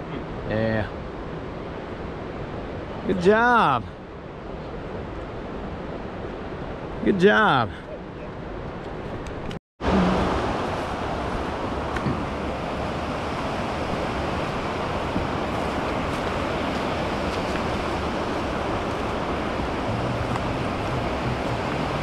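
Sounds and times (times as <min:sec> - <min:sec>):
river water rushing: 0:09.8 - 0:22.0.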